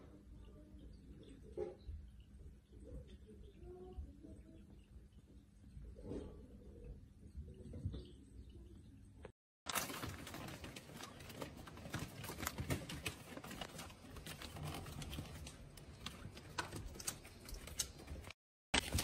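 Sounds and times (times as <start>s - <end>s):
paper rustling: 9.7s - 19.0s.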